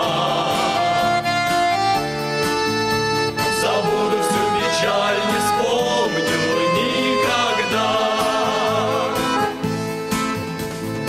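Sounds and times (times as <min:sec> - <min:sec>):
accordion playing sustained chords: 0:00.0 - 0:11.0.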